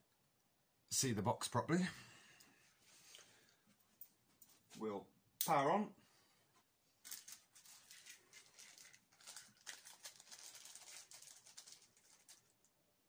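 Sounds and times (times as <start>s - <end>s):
faint rustles and clicks: 6.5s - 12.8s.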